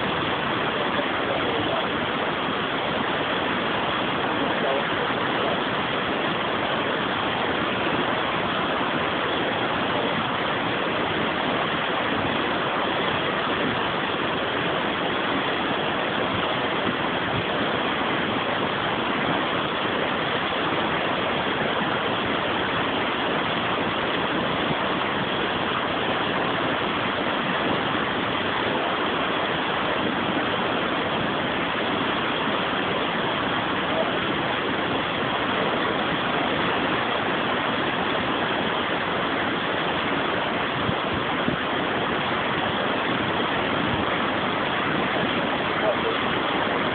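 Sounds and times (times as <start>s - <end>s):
water rushing over a weir: 0.0s - 46.9s.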